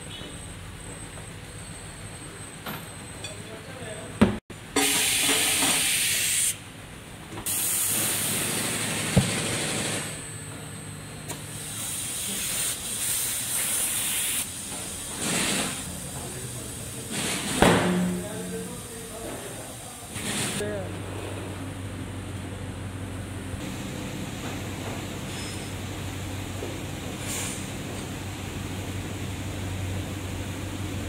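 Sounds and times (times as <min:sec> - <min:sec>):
compressed air hissing from hose: 0:05.0 - 0:06.6, 0:07.5 - 0:08.5, 0:11.6 - 0:15.9.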